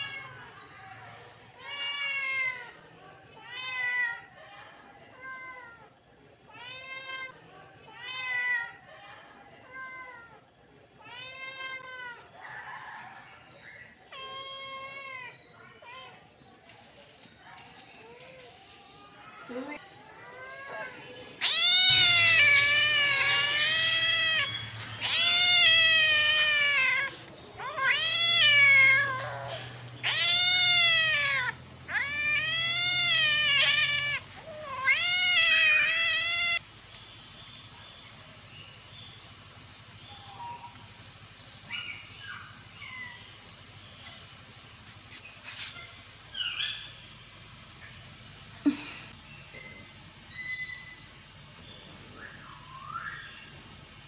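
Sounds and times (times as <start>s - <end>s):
kittens meowing: 19.5s - 36.6s.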